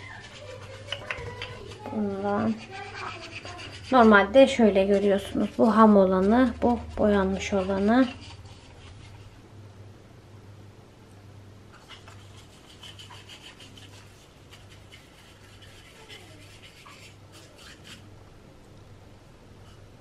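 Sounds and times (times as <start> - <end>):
paintbrush scratching on wood: 0.0 - 9.4, 11.8 - 18.1
steady low hum: 0.0 - 20.0.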